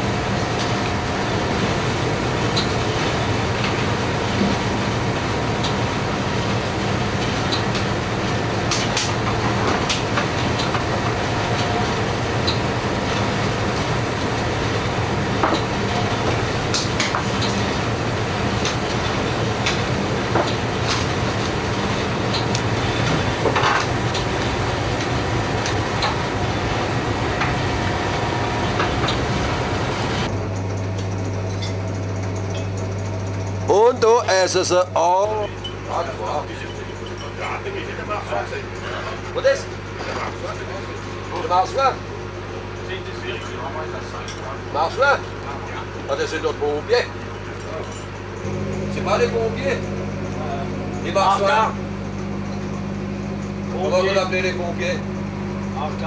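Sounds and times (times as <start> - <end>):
boat engine rumble: 47.0 - 56.0.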